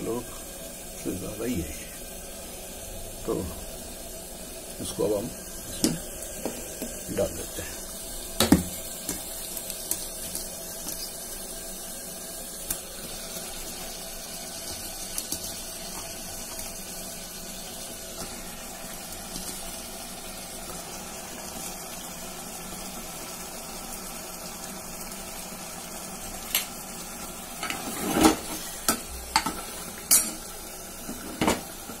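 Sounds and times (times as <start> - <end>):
chicken sizzling in hot oil: 0.0 - 32.0
utensils knocking against pot: 27.6 - 30.4.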